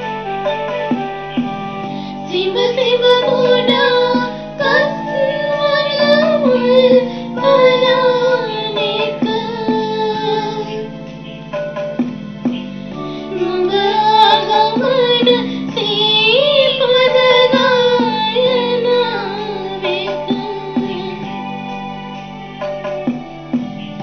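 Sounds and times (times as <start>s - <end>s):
plucked string accompaniment: 0.0s - 24.0s
woman singing: 2.1s - 10.9s, 13.3s - 21.7s.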